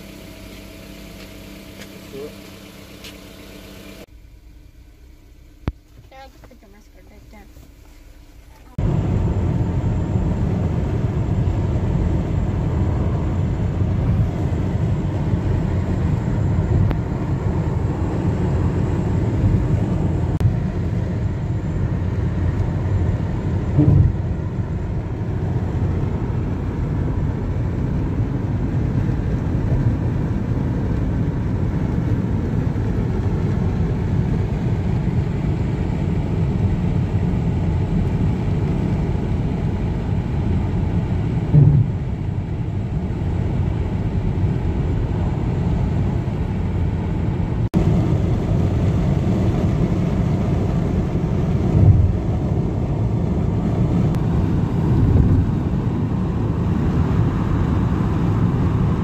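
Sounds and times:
car cabin road rumble: 0.0 - 59.0
brief thump: 23.8 - 24.2, 41.5 - 42.2.

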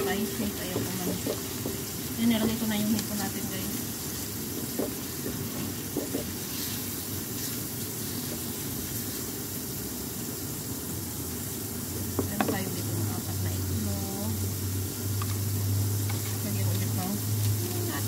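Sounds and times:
spatula knocking on pan: 0.0 - 3.2, 4.4 - 6.4, 12.2 - 12.6
shrimp and onions sizzling in wok: 0.0 - 18.0.

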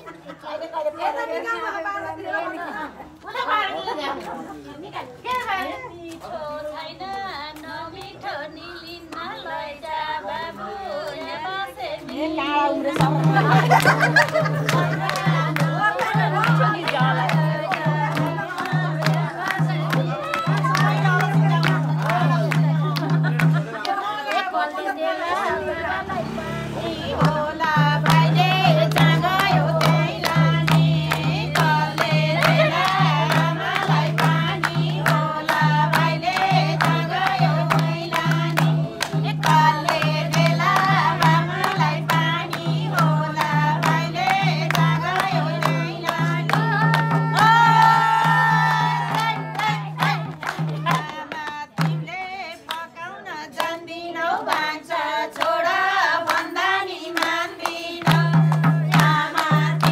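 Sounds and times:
group of women singing: 0.0 - 59.9
people clapping: 7.0 - 59.9
hand drum beat: 12.5 - 23.8, 27.0 - 52.2, 56.3 - 59.9.

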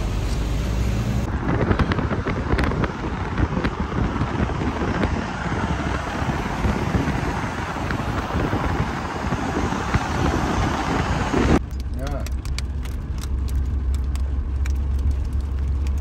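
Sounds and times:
moving car rumble: 0.0 - 16.0
wind buffeting microphone: 1.1 - 11.7.

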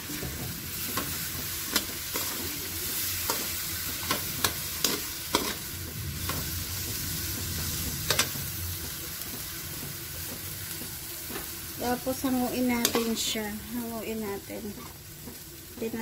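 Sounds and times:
food sizzling in a wok: 0.0 - 16.0.

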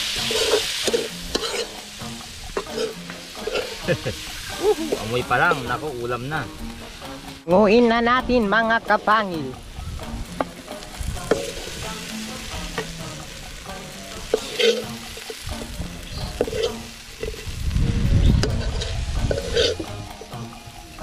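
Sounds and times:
ladle scraping and knocking in pan: 0.0 - 5.1, 10.3 - 17.6, 18.3 - 20.4
food sizzling: 0.0 - 21.0.

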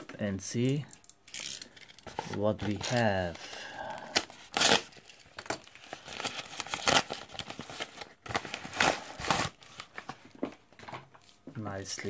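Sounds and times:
packaging crinkling and rustling: 1.3 - 12.0.

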